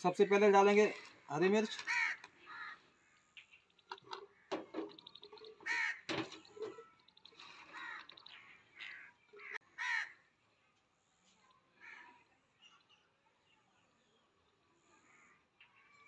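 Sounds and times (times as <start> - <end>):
crows cawing: 1.6 - 3.0, 4.0 - 10.2, 11.8 - 12.3, 14.9 - 15.5.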